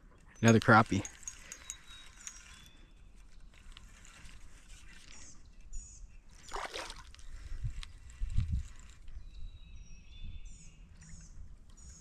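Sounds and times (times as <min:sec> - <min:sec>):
fish splashing in water: 0:06.4 - 0:07.2.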